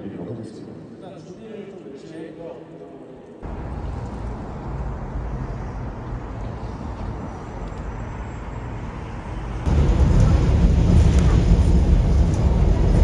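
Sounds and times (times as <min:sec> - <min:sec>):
moving vehicle rumble: 0:03.4 - 0:13.0.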